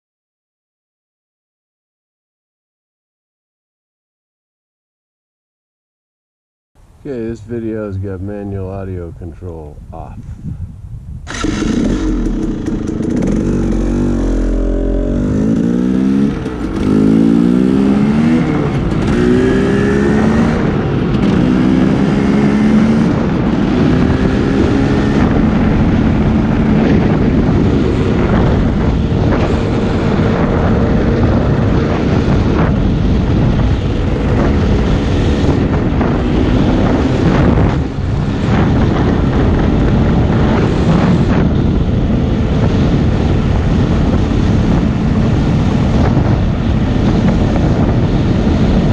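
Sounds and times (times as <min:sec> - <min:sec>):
dirt bike engine accelerating: 0:11.2 - 0:48.9.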